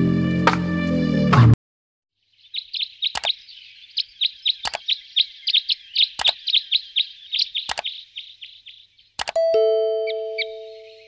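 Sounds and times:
bird chirping: 2.2 - 11.0
sharp bird clicks: 2.6 - 9.4.

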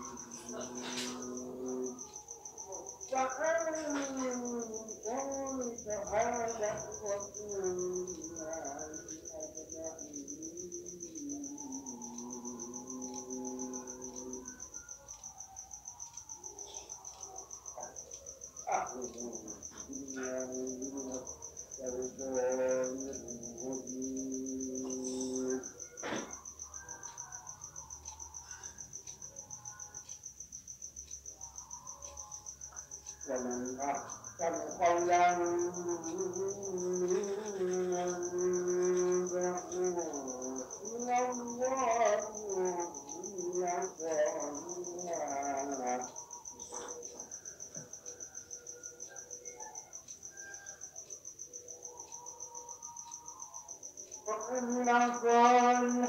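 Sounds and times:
man chanting held note: 0.0 - 14.6
cricket chirping: 0.0 - 56.0.

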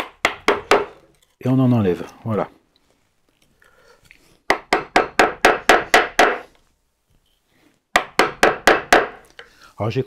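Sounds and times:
mallet striking chisel into wood: 0.0 - 1.0, 4.5 - 6.4, 7.9 - 9.2.

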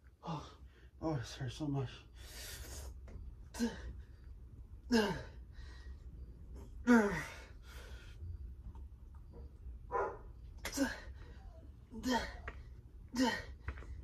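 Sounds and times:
man groaning with effort: 6.8 - 7.5, 10.6 - 11.2, 11.9 - 13.6.

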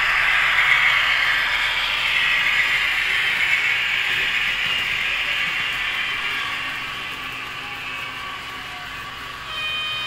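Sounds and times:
model train rolling on track: 0.0 - 10.0.

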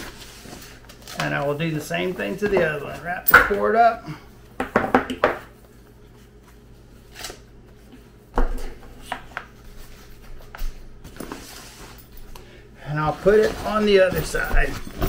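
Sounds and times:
sander knocking on stone countertop: 4.6 - 5.4.

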